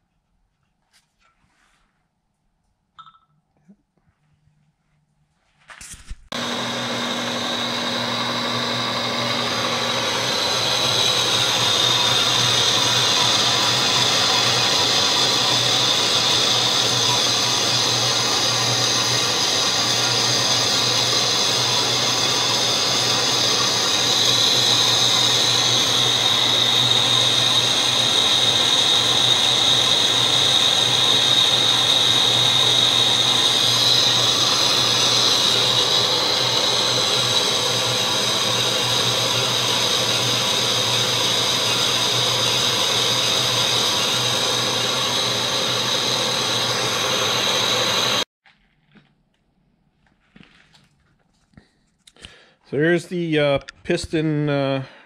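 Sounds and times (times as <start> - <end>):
metal lathe machining: 6.3 - 48.3.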